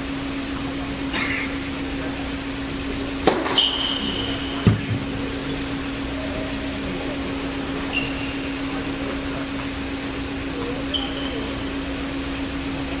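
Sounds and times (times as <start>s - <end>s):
ventilation hum: 0.0s - 13.0s
brief high squeak: 3.5s - 4.6s, 7.8s - 8.6s, 10.9s - 11.5s.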